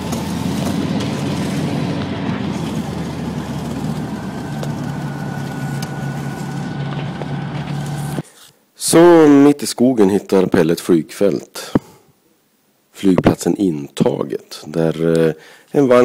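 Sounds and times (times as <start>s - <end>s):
propeller aircraft engine running: 0.0s - 8.2s.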